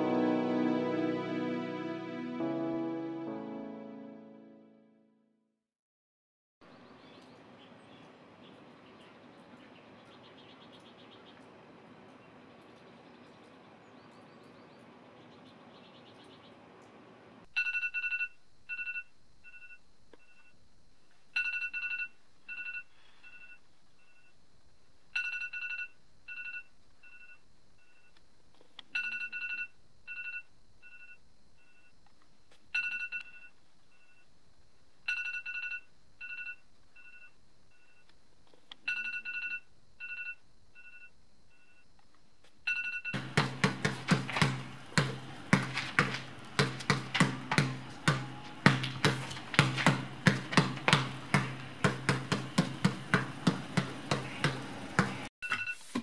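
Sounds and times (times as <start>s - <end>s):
basketball dribbling: 43.2s - 56.0s.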